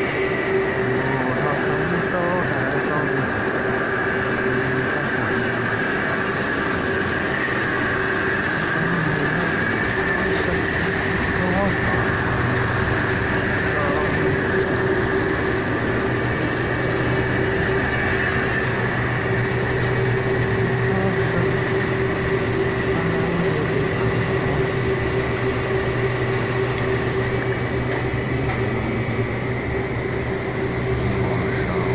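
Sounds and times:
machine hum with whine: 0.0 - 31.9.

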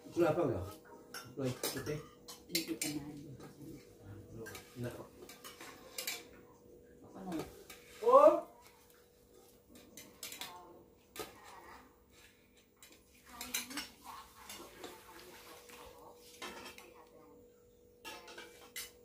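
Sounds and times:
cutlery clinking on plates: 1.1 - 3.6, 4.3 - 6.4, 9.7 - 11.7, 12.5 - 15.3, 16.3 - 17.1, 18.0 - 19.0.

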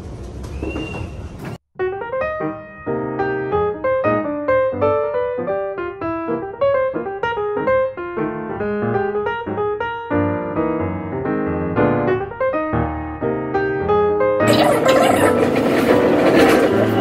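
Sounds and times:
piano music: 1.8 - 13.6.

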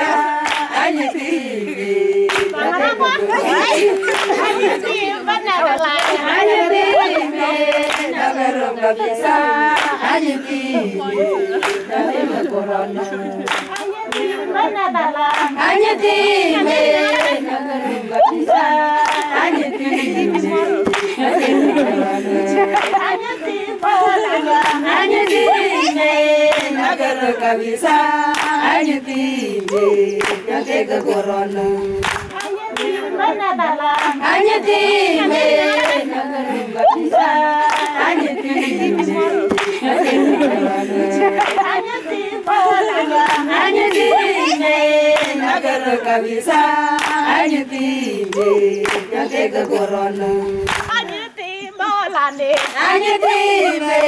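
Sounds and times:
hand claps: 0.0 - 1.4, 2.2 - 2.8, 3.4 - 4.8, 5.6 - 8.4, 9.7 - 10.2, 11.2 - 12.6, 13.4 - 14.5, 15.2 - 15.8, 16.6 - 17.4, 18.2 - 21.9, 22.7 - 27.1, 27.8 - 31.2, 31.8 - 33.1, 33.9 - 34.6, 35.3 - 36.1, 36.8 - 40.6, 41.3 - 45.8, 46.5 - 51.2, 52.6 - 53.2
women singing a chant: 0.0 - 54.0
sharp hand claps: 0.4 - 0.8, 2.3 - 2.6, 6.0 - 6.2, 7.8 - 8.2, 11.6 - 11.9, 13.4 - 14.4, 15.3 - 15.6, 19.0 - 19.5, 20.4 - 21.2, 24.6 - 25.4, 26.5 - 26.8, 28.3 - 28.8, 29.6 - 31.2, 31.9 - 33.0, 34.0 - 34.3, 37.6 - 38.3, 39.5 - 39.9, 41.4 - 41.8, 43.2 - 44.1, 46.9 - 47.5, 48.2 - 49.8, 50.5 - 51.2, 52.6 - 52.8.

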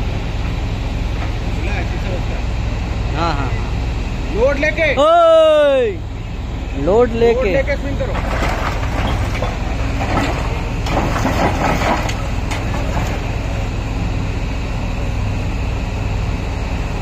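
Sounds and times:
excavator diesel engine running: 0.0 - 17.0
rubble knocking and scraping: 8.1 - 13.3.

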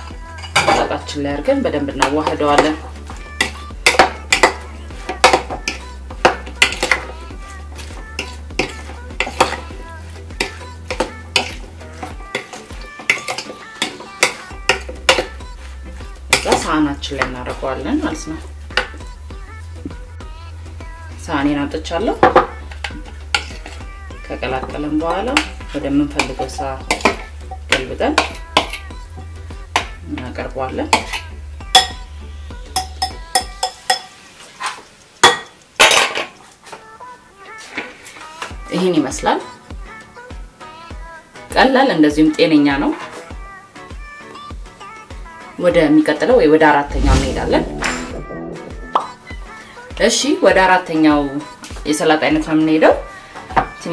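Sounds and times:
spoon scraping salad bowl: 2.0 - 17.3, 22.7 - 23.9, 30.9 - 31.9.

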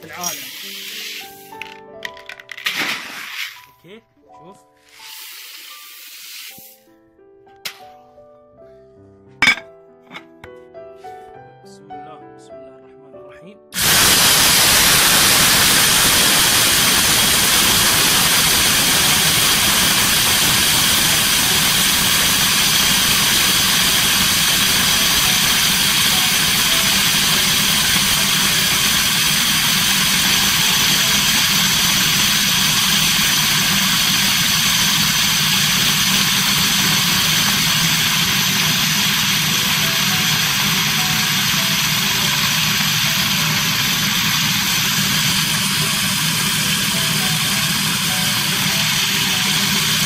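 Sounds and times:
electric grinder milling grain: 0.0 - 1.7, 13.8 - 50.0.

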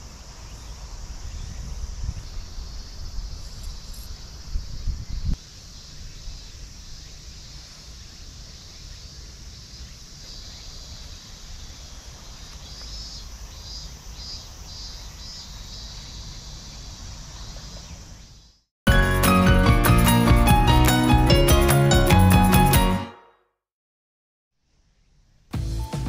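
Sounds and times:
insects calling: 0.0 - 18.6.

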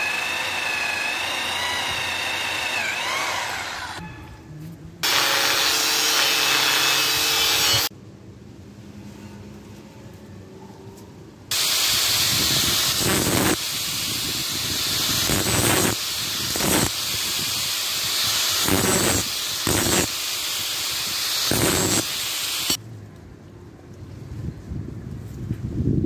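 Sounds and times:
angle grinder whining: 0.0 - 4.0, 5.0 - 7.9, 11.5 - 22.8
grinder disc biting steel: 5.0 - 7.9.

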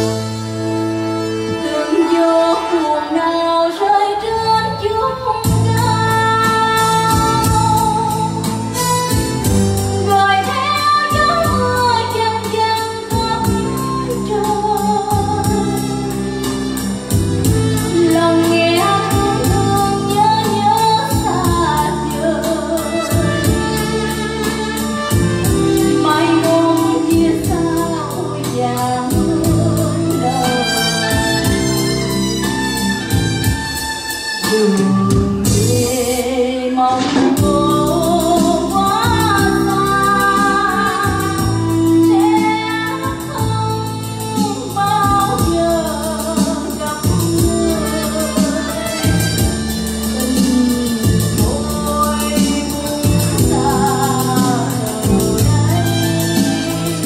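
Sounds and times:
backing band through loudspeakers: 0.0 - 57.0
person singing opera aria: 50.2 - 57.0.

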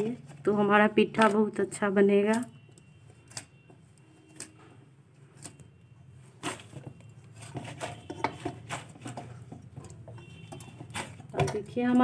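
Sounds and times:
dough kneading clicks and taps: 6.8 - 12.0.

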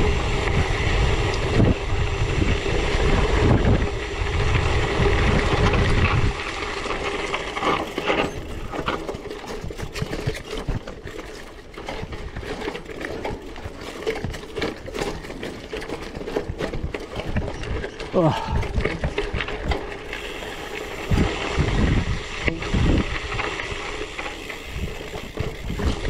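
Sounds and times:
bicycle rattling over rocky ground: 0.0 - 26.0
wind rumble on microphone: 0.0 - 26.0.

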